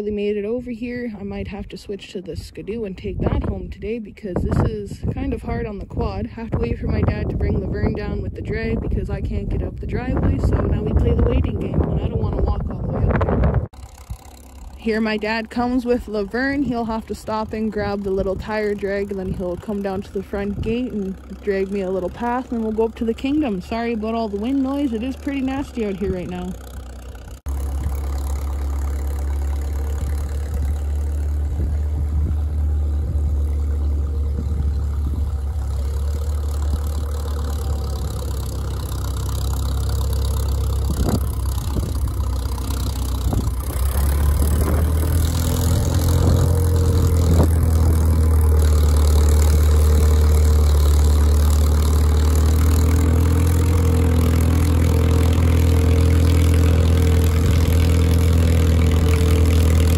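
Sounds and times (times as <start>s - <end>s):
crawler tractor engine running: 0.0s - 59.9s
wind gusting on microphone: 1.3s - 13.8s, 29.8s - 38.2s, 40.4s - 48.5s.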